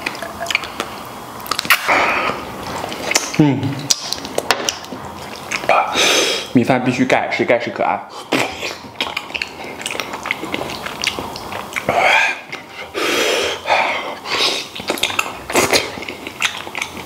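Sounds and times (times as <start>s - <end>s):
chewing and lip-smacking: 0.0s - 6.0s, 8.3s - 12.7s, 14.2s - 17.0s.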